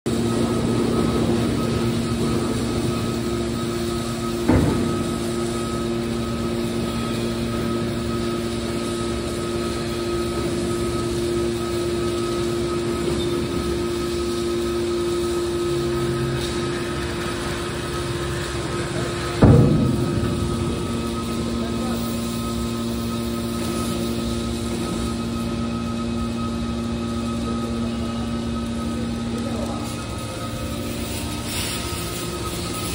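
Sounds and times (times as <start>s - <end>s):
hydraulic pump humming: 0.1s - 32.9s
metal clunk: 19.4s - 21.6s.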